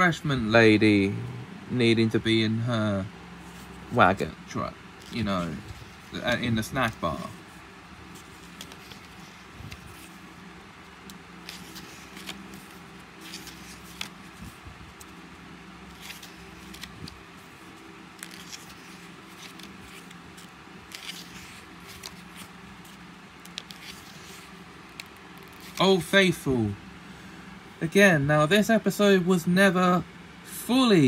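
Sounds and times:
steady low hum: 0.0s - 31.0s
book pages turning: 3.4s - 26.1s.

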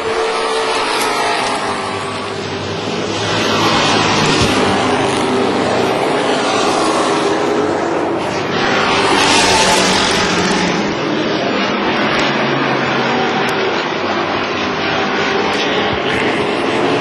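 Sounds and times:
racing truck engines passing: 0.0s - 17.0s.

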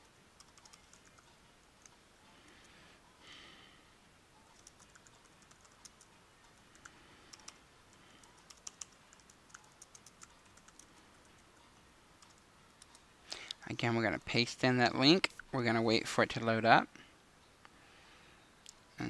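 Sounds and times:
computer keyboard typing: 0.4s - 2.0s, 4.5s - 11.5s, 12.2s - 13.0s.

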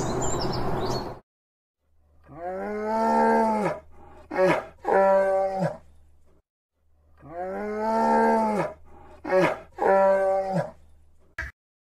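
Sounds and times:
birds chirping: 0.0s - 1.2s.

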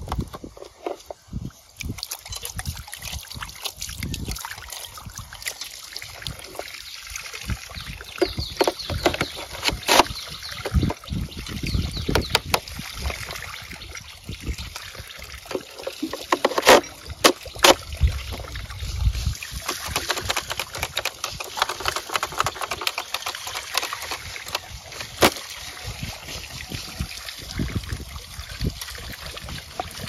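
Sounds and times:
plastic toy clicks and knocks: 8.2s - 11.0s, 15.5s - 17.8s, 19.6s - 25.4s
hands splashing water: 14.9s - 27.1s.

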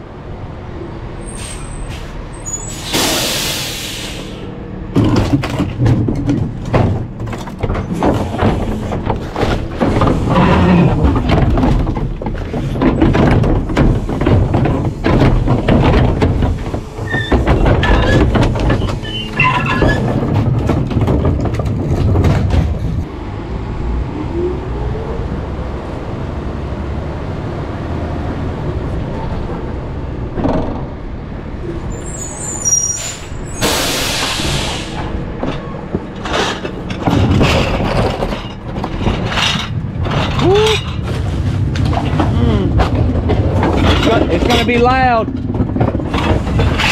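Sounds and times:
garbage truck engine running: 0.4s - 46.9s
loud air hiss: 2.7s - 4.5s, 33.0s - 35.0s
trash bags knocking and rustling: 4.9s - 23.1s, 35.4s - 46.9s.

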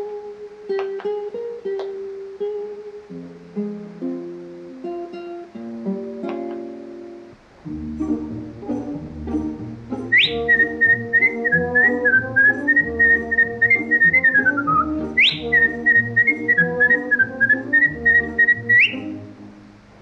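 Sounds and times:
instrumental music with bouncing bass: 7.6s - 19.7s
whistled tune: 9.9s - 19.2s.

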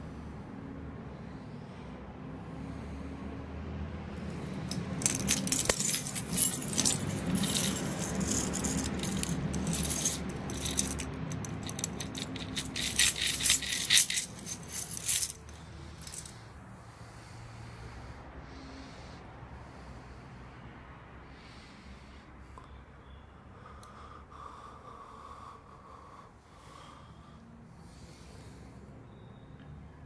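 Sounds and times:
keys jangling: 4.6s - 16.3s.

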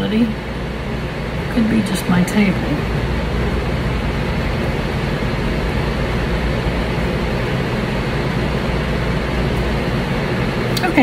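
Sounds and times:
low hum: 0.0s - 11.0s
steady rushing noise: 0.1s - 11.0s.

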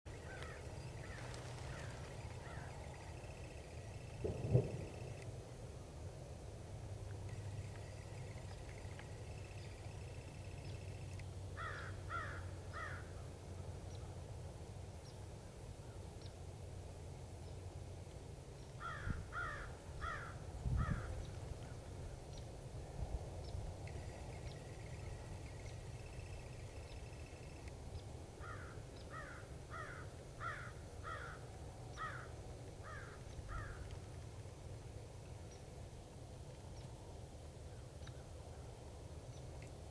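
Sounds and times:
low background hum: 0.1s - 39.9s
crows cawing: 0.2s - 3.1s, 11.6s - 13.1s, 18.8s - 21.1s, 28.4s - 31.4s, 32.0s - 33.8s
low thumps: 4.2s - 5.2s.

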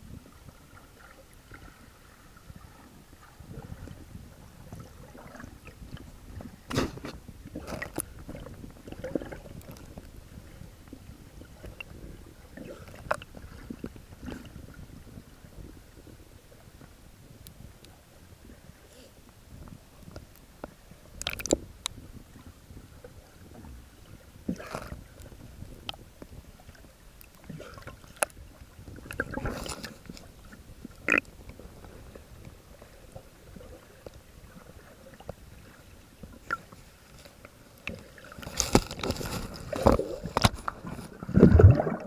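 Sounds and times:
underwater rumble: 0.0s - 42.0s
underwater knocking and clicks: 12.9s - 14.5s, 20.0s - 22.0s, 37.4s - 42.0s
bubbling: 37.8s - 42.0s.

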